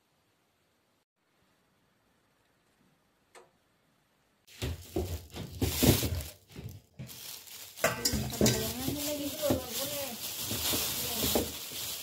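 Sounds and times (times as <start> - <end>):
plastic bag crinkling: 4.5 - 12.0.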